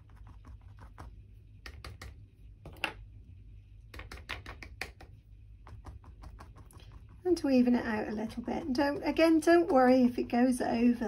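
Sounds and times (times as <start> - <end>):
paintbrush tapping on board: 0.2 - 2.2, 4.0 - 7.2.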